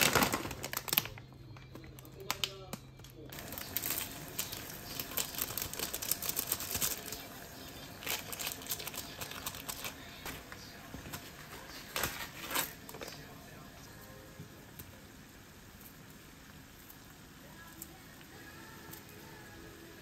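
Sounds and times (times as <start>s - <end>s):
plastic sachets crinkling: 0.0s - 13.4s
water boiling in pot: 0.0s - 20.0s.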